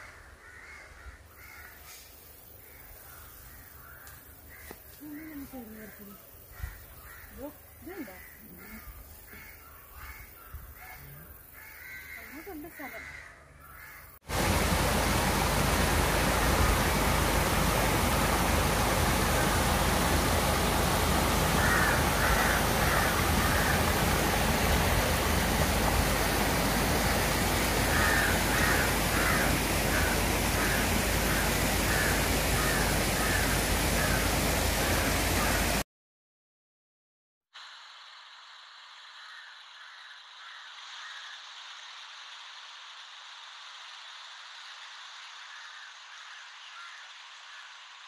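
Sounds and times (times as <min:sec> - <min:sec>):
stream rushing over rocks: 0:14.2 - 0:35.8.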